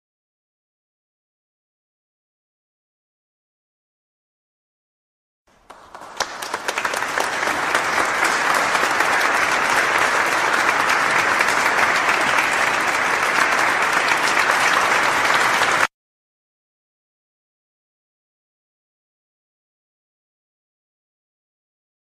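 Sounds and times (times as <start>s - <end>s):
applause: 5.5s - 15.9s.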